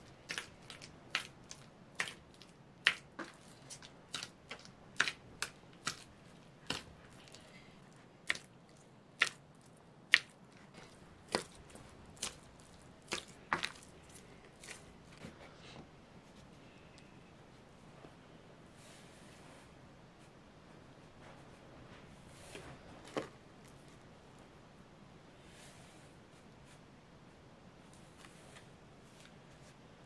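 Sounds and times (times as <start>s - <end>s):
dough being kneaded by hand: 0.0s - 16.5s.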